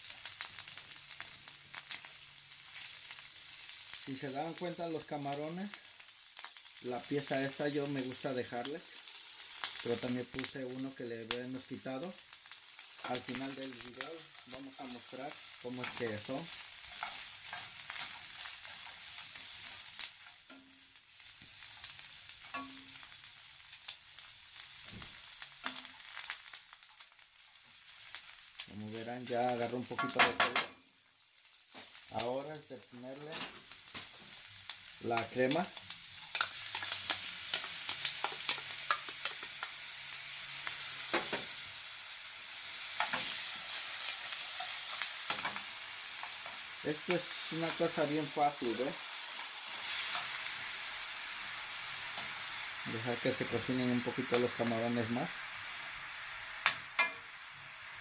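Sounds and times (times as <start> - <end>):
food sizzling in oil: 0.0 - 58.0
tongs clicking and scraping pan: 14.2 - 20.8, 21.5 - 23.1, 25.6 - 27.0, 29.5 - 30.8, 35.0 - 39.9, 42.6 - 50.8, 56.6 - 57.3.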